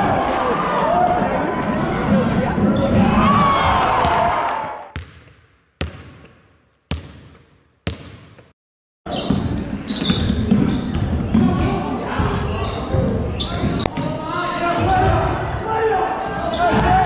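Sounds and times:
crowd noise: 0:00.0 - 0:04.9
ball dribbling on hardwood court: 0:05.0 - 0:08.5
sneaker squeaks: 0:09.1 - 0:17.0.

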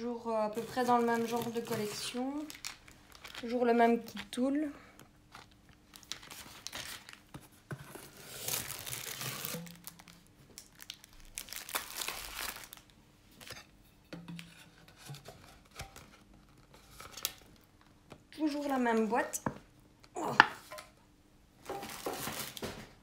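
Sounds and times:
plastic bag crinkling: 0:00.4 - 0:04.4, 0:05.2 - 0:12.9, 0:21.6 - 0:22.8.

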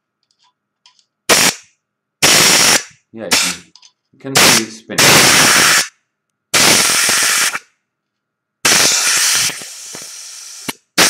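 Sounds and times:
compressed air hissing: 0:01.3 - 0:01.6, 0:02.2 - 0:03.6, 0:04.4 - 0:05.9, 0:06.6 - 0:07.7, 0:08.6 - 0:11.0.

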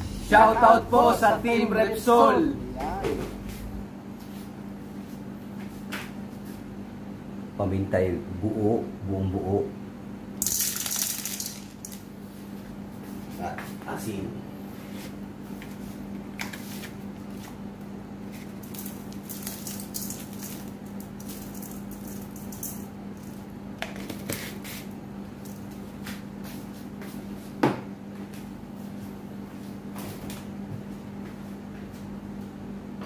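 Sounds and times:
steady low hum: 0:00.0 - 0:33.0
salt rattling from a canister: 0:10.4 - 0:12.0.

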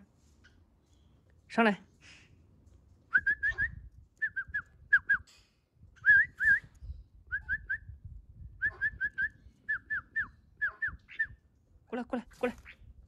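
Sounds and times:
person whistling short notes: 0:06.0 - 0:06.7.

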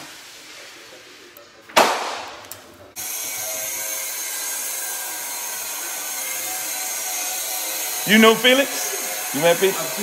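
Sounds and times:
electric motor whining hum: 0:03.0 - 0:10.0.

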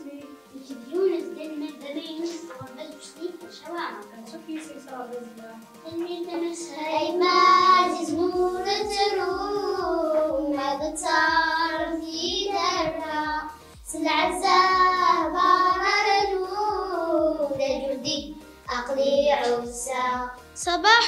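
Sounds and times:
low backing beat: 0:00.0 - 0:21.0
girls singing together: 0:06.3 - 0:20.4.

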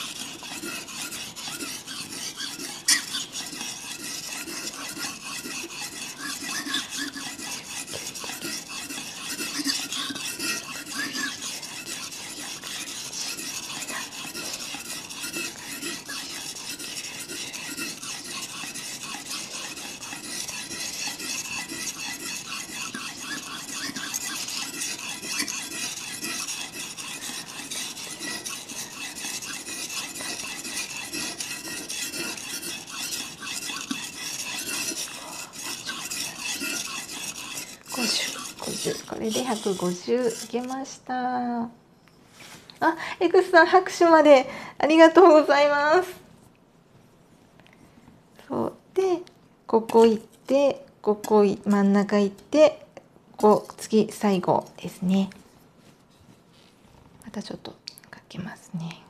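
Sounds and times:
knife scraping on wet whetstone: 0:00.0 - 0:41.0.

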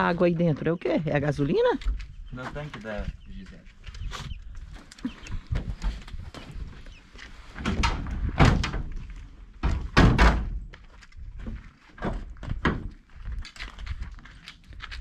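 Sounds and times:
thuds on metal van body: 0:07.6 - 0:08.9, 0:09.6 - 0:10.6.

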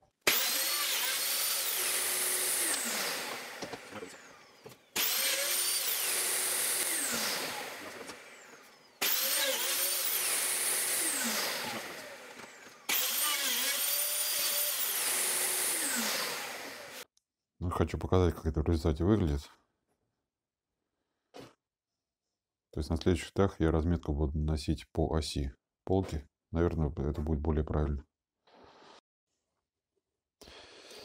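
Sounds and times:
drilling machine motor whining: 0:00.3 - 0:17.0.

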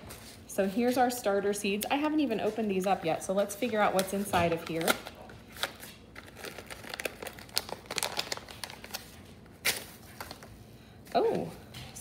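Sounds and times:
paper crinkling: 0:03.6 - 0:10.6.

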